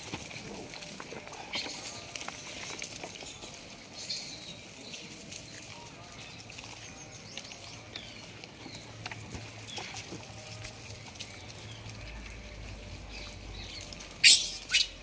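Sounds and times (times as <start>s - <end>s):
monkeys rummaging in plastic crate: 0.0s - 14.9s
monkey high chirps: 14.2s - 15.0s.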